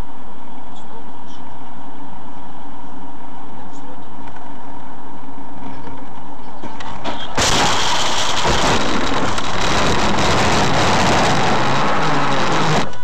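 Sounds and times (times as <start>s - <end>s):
faint engine hum: 0.0s - 7.2s
loud steady rushing noise: 7.4s - 13.0s.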